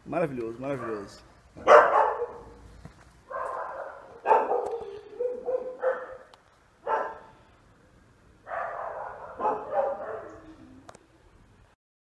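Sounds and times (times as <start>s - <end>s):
dog barking: 0.8s - 2.6s, 3.3s - 7.3s, 8.5s - 10.4s.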